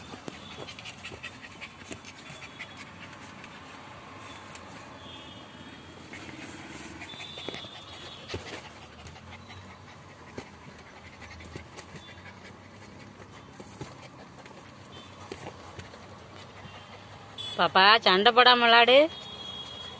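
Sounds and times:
paws scrabbling on plastic: 0.0s - 3.8s, 6.1s - 17.1s
puppies panting and scuffling: 0.0s - 5.0s, 5.6s - 19.9s.

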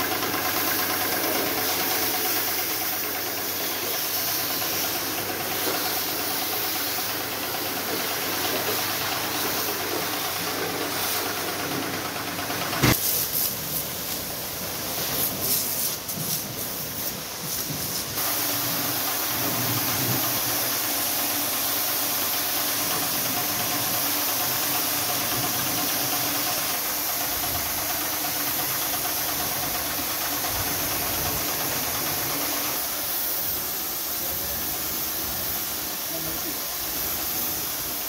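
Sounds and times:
small petrol engine running: 0.0s - 13.0s, 18.3s - 33.0s
water jet hissing: 0.0s - 38.0s.

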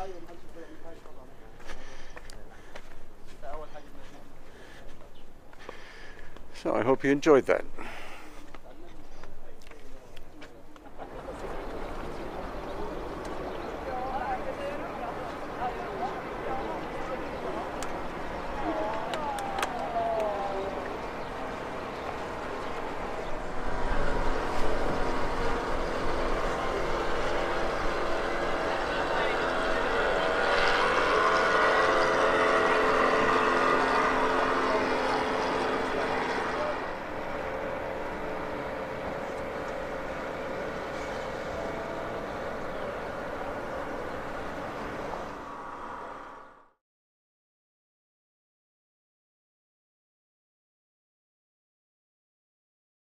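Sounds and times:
motorboat engine running: 10.8s - 46.2s.

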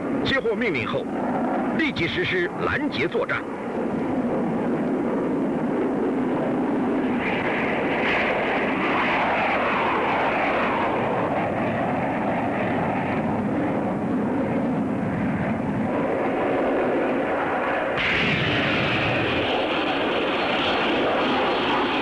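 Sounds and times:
jet aircraft engines roaring: 0.0s - 22.0s.

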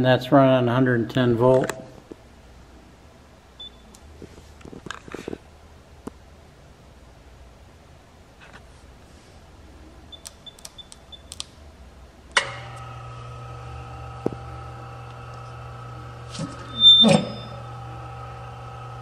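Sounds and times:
keypad beeps: 3.6s - 3.9s, 10.1s - 11.4s
machine humming: 12.3s - 19.0s.

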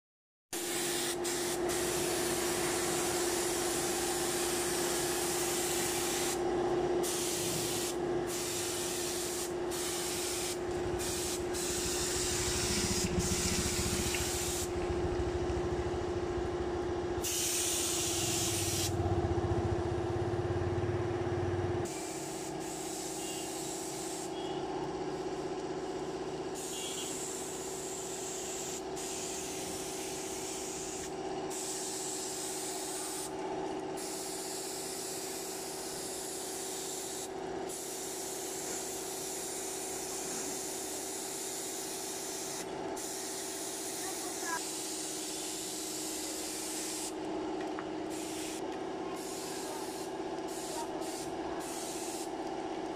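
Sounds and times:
paint spray gun hissing: 0.6s - 6.4s, 7.0s - 14.8s, 17.2s - 19.0s, 21.8s - 24.6s, 26.5s - 33.3s, 34.0s - 47.2s, 48.1s - 48.6s, 49.2s - 52.4s
steady hum: 1.3s - 17.2s.

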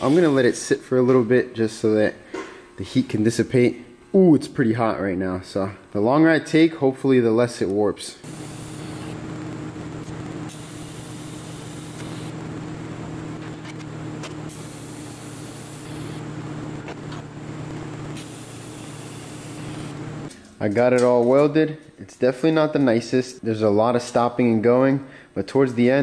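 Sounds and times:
welding arc hissing: 0.0s - 0.6s, 8.2s - 13.4s, 14.4s - 16.6s, 17.5s - 20.3s
welder electrical hum: 0.0s - 26.0s.

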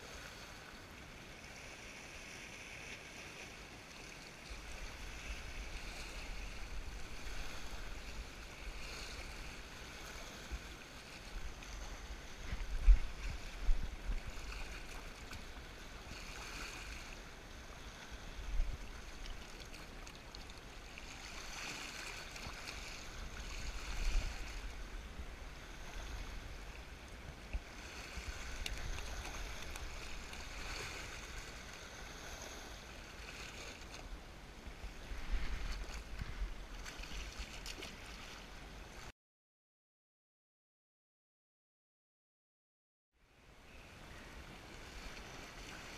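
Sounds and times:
sea waves washing over rocks: 1.4s - 39.1s
wind buffeting the microphone: 11.3s - 15.6s, 23.0s - 32.3s, 34.7s - 38.0s.

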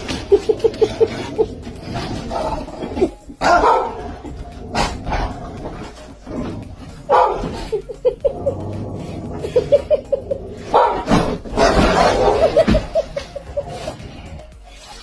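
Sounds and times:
person laughing: 0.0s - 1.9s, 2.7s - 3.4s, 7.4s - 10.7s, 12.2s - 14.3s
dog barking: 3.4s - 4.2s, 7.1s - 7.7s, 10.7s - 12.6s.

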